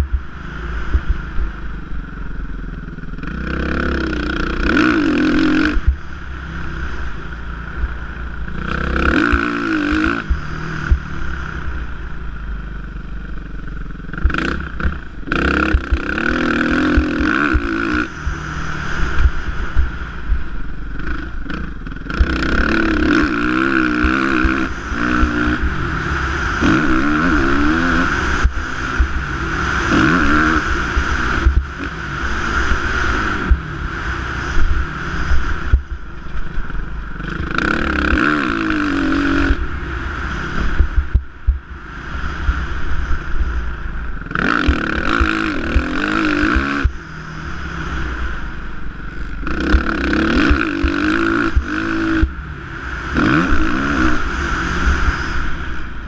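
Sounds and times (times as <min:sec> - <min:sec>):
motocross bike engine revving: 0:00.0 - 0:56.0
wind buffeting microphone: 0:14.2 - 0:56.0.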